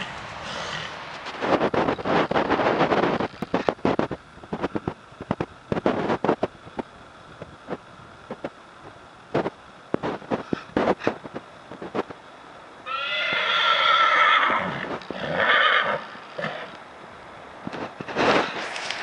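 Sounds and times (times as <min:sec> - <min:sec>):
loud rush of noise: 0:00.0 - 0:12.9.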